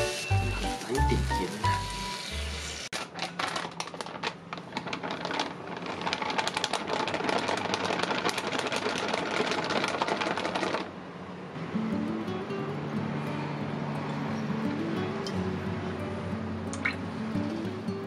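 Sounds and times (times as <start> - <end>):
powder pouring from packet: 3.0 - 10.9.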